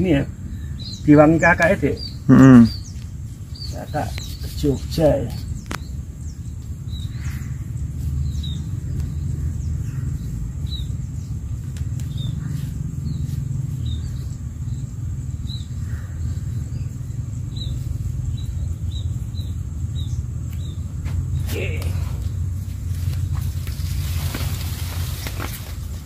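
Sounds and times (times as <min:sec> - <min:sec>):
insect drone: 0:00.0 - 0:26.0
low steady rumble: 0:00.0 - 0:26.0
high bird chirps: 0:00.5 - 0:11.4.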